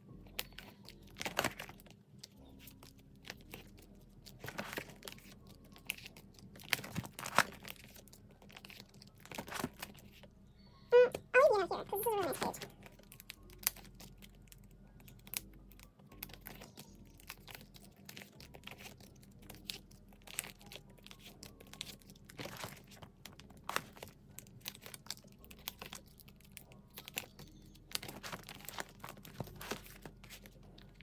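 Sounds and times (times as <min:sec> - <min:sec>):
plastic sleeves crinkling: 0:00.1 - 0:10.3, 0:11.0 - 0:31.0.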